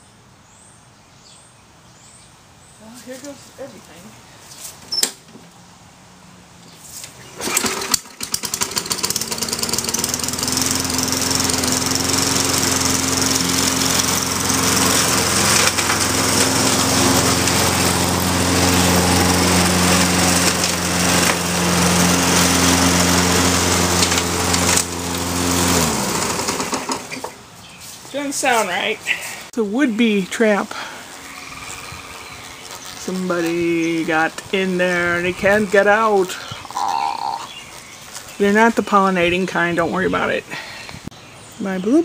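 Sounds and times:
person talking: 0:02.8 - 0:04.2, 0:28.1 - 0:31.0, 0:33.0 - 0:37.5, 0:38.4 - 0:40.6, 0:41.6 - 0:42.0
lawnmower engine running: 0:07.2 - 0:27.5, 0:30.0 - 0:38.7.

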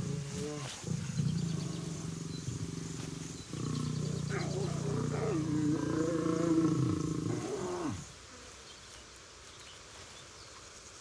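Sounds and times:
lion humming: 0:00.0 - 0:08.1
faint outdoor background: 0:00.0 - 0:11.0.

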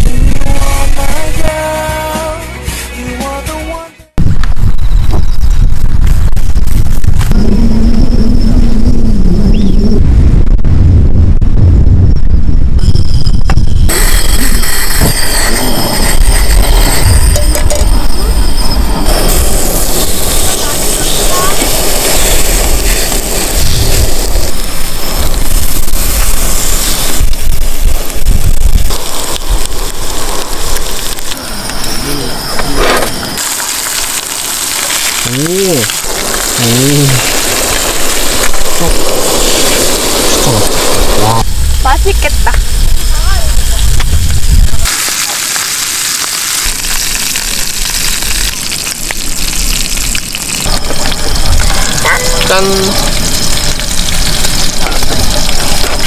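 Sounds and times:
low rumble: 0:04.2 - 0:33.5, 0:35.1 - 0:45.0
meat sizzling in a frying pan: 0:19.1 - 0:31.9, 0:33.4 - 0:56.0.

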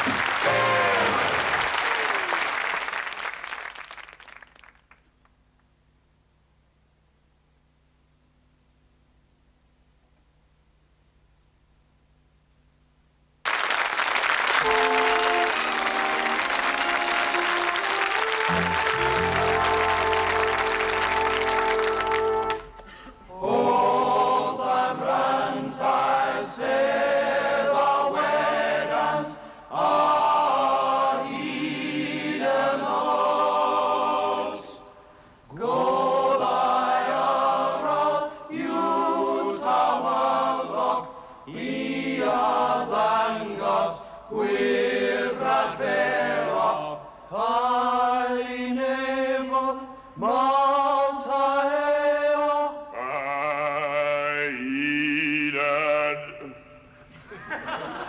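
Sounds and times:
male choir singing in harmony: 0:23.3 - 0:56.9.

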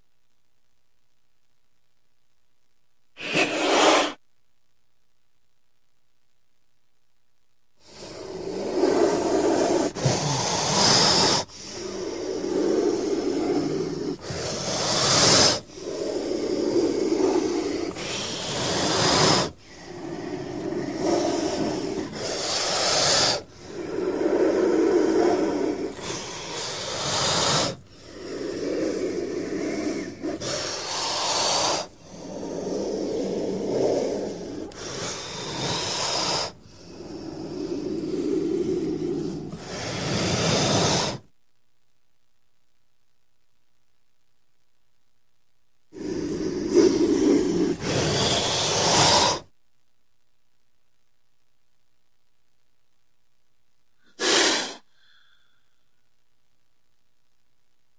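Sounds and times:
snake hissing: 0:03.2 - 0:04.2, 0:07.8 - 0:41.3, 0:45.9 - 0:49.5, 0:54.0 - 0:55.8.

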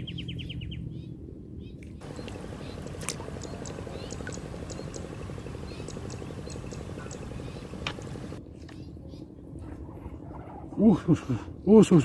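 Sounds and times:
frogs pulsing chorus: 0:02.0 - 0:08.4
steady low rumble: 0:02.0 - 0:08.4.

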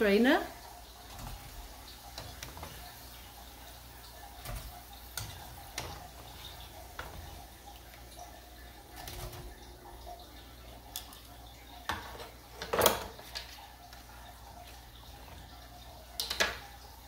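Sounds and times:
oil sizzling deep-frying: 0:00.0 - 0:17.0
metal tongs clicking on cookware: 0:16.2 - 0:16.6.

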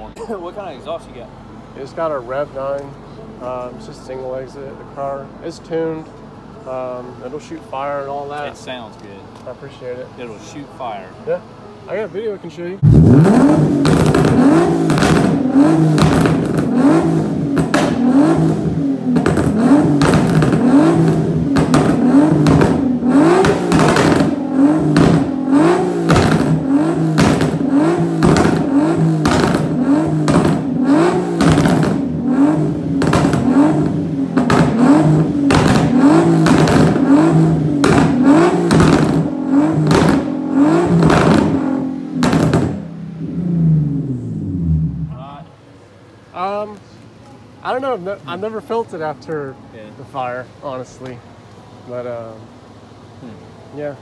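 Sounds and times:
exhaust crackling pops: 0:12.8 - 0:43.4
car engine revving: 0:12.8 - 0:46.7.

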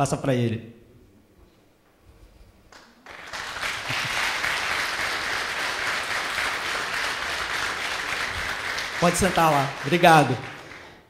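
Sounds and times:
congregation applauding: 0:02.7 - 0:11.0.

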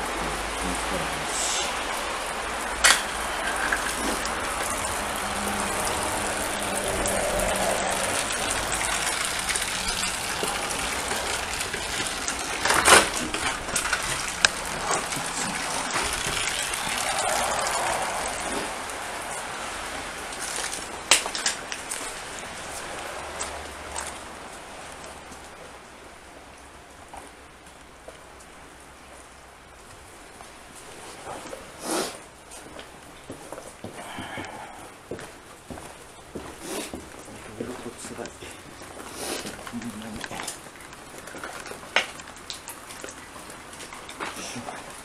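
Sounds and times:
rain hissing: 0:00.0 - 0:27.0, 0:36.6 - 0:45.0.

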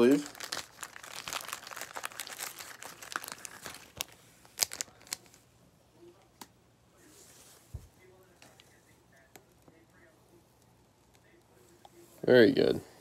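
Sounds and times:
plastic sleeve crinkling: 0:00.0 - 0:05.5.

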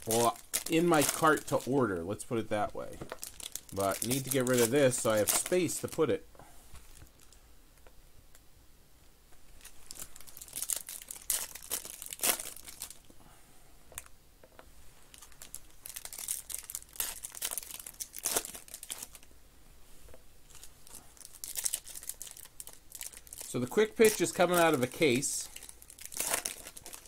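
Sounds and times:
foil wrapper ripping: 0:00.0 - 0:01.8, 0:03.1 - 0:06.1, 0:09.6 - 0:13.0, 0:15.1 - 0:19.2, 0:20.5 - 0:27.0
foil wrappers crinkling: 0:00.0 - 0:01.9, 0:02.5 - 0:06.2, 0:09.6 - 0:13.1, 0:15.1 - 0:19.3, 0:20.5 - 0:27.0.

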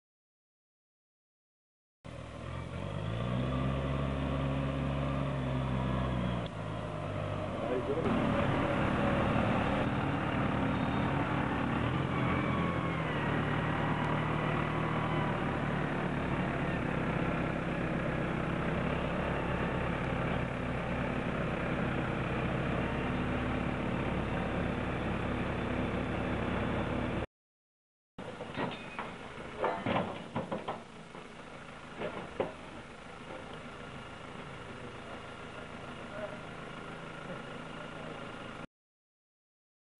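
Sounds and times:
diesel engine running: 0:02.1 - 0:27.3, 0:28.2 - 0:38.7
whining tone shifting in pitch: 0:03.6 - 0:20.9.

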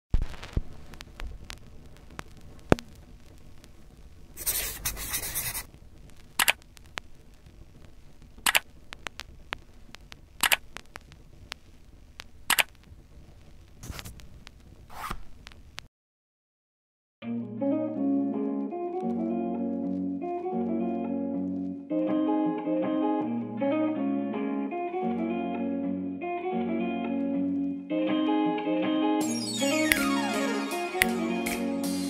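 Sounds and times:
sharp clicks: 0:06.4 - 0:07.1, 0:08.4 - 0:11.6, 0:12.2 - 0:12.8.

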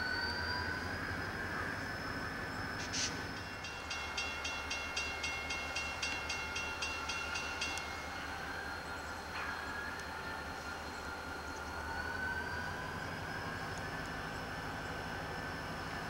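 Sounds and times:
diesel locomotive rumble: 0:00.0 - 0:16.0
crossing bell ringing fast: 0:03.4 - 0:10.4.

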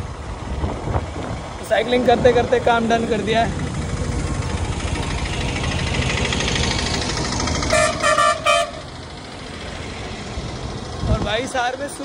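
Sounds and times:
city street traffic: 0:00.0 - 0:12.0
vehicle horn honks: 0:07.7 - 0:08.8.

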